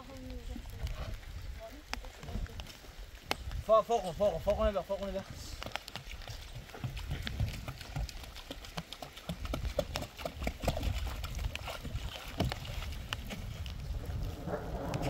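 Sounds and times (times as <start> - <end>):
water glugging from a plastic can: 5.6 - 15.0
low rumble: 13.3 - 15.0.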